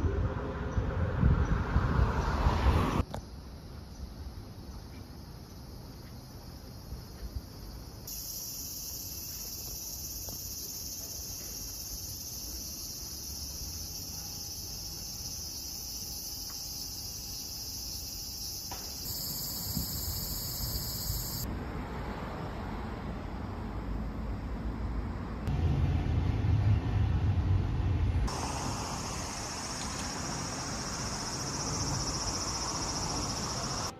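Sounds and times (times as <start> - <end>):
distant traffic: 0.0 - 3.3, 8.1 - 33.9
insects shrilling: 8.1 - 21.4, 28.3 - 33.9.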